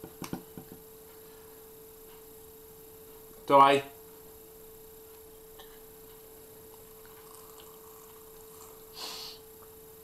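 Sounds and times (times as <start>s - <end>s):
faint electrical hum: 0.0s - 10.0s
breathy hiss from drinking: 8.9s - 9.5s.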